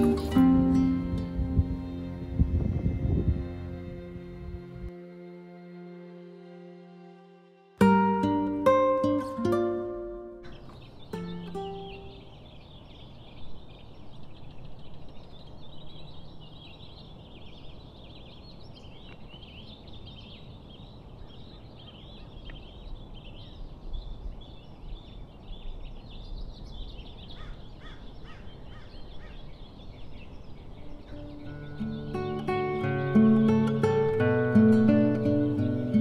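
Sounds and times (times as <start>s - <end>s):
birds chirping and twittering: 0.0s - 4.9s, 9.1s - 36.0s
low outdoor rumble: 0.0s - 6.4s.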